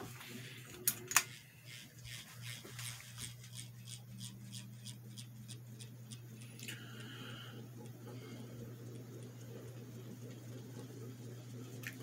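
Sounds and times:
ceiling fan motor hum: 0:00.0 - 0:12.0
fan ticking: 0:03.3 - 0:12.0.

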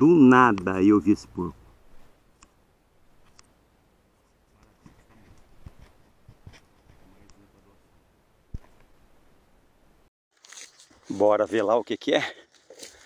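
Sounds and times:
soft clicks and scraping: 0:04.2 - 0:07.4.

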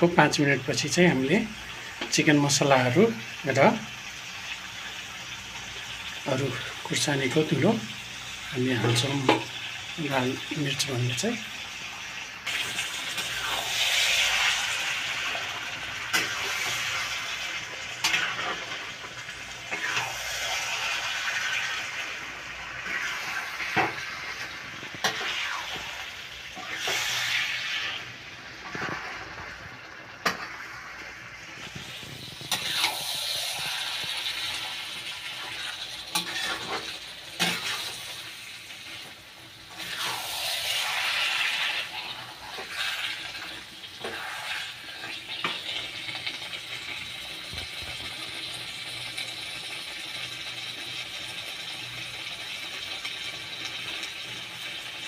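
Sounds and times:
food sizzling in a pan: 0:00.0 - 0:55.0
metal spatula scraping a pan: 0:16.1 - 0:19.1, 0:19.7 - 0:21.8, 0:22.8 - 0:26.0, 0:26.6 - 0:29.6, 0:31.7 - 0:34.7, 0:35.4 - 0:38.2.

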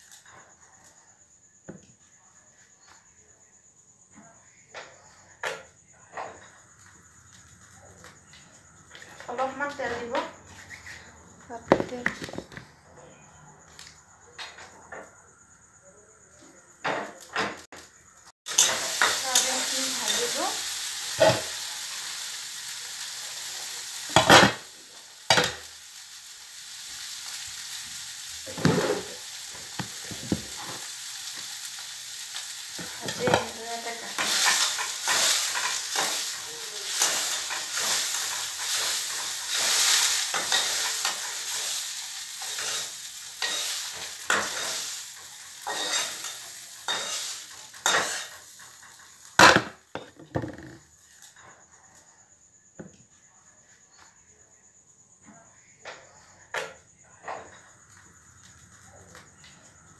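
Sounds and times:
food sizzling in oil: 0:00.0 - 0:00.4, 0:06.6 - 0:12.6, 0:16.8 - 0:51.4
utensil scraping a pan: 0:28.5 - 0:29.2.

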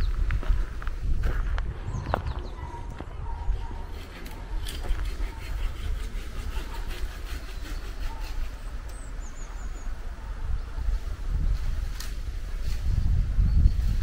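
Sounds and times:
footsteps on cobblestones: 0:00.0 - 0:03.2
wind rumble on microphone: 0:00.0 - 0:07.1, 0:08.0 - 0:14.0.

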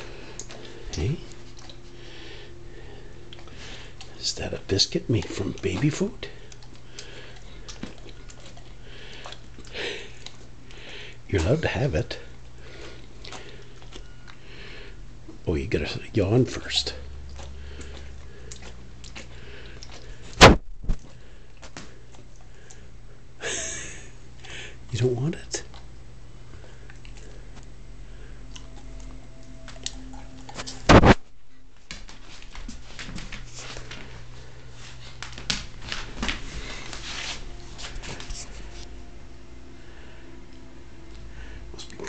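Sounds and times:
faint low hum: 0:00.0 - 0:42.0
dog crunching biscuit: 0:03.3 - 0:10.8.

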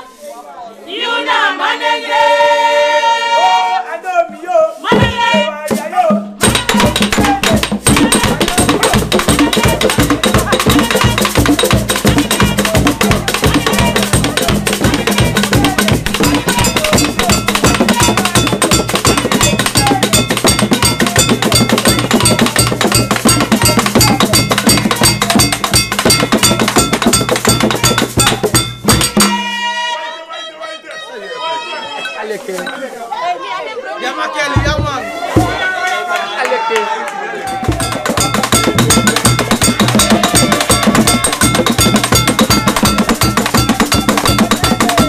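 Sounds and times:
hand drums playing fast rhythm: 0:04.9 - 0:29.6, 0:34.5 - 0:35.6, 0:37.5 - 0:45.0
cowbell-like metal strikes: 0:04.9 - 0:29.8, 0:37.5 - 0:45.0.

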